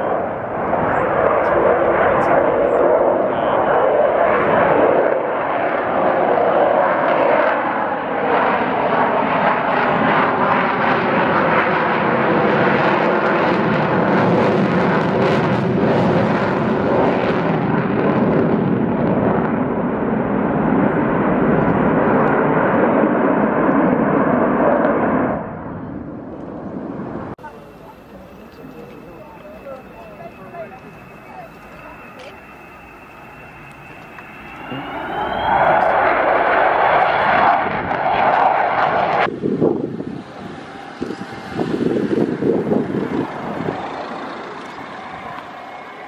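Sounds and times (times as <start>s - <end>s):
jet engines roaring: 0.0s - 46.0s
whining tones sliding in pitch: 28.6s - 39.2s.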